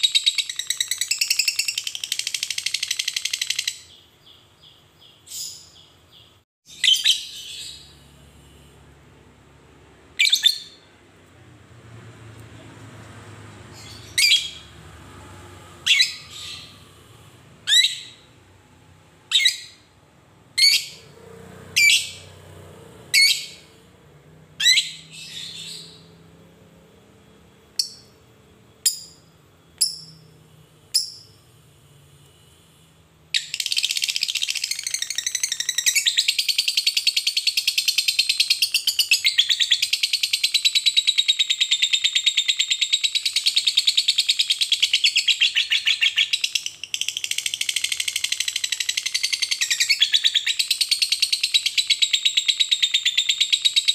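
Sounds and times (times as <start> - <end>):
lovebird rapid chatter trill: 0.0 - 3.9, 33.4 - 39.2, 46.0 - 53.8
lovebird sharp chirps: 0.0 - 8.0, 10.2 - 10.9, 13.7 - 14.7, 15.8 - 16.9, 17.6 - 18.3, 19.3 - 19.9, 20.6 - 21.1, 21.8 - 22.3, 23.1 - 23.7, 24.6 - 26.1, 28.8 - 30.3, 30.9 - 31.4, 33.4 - 53.9.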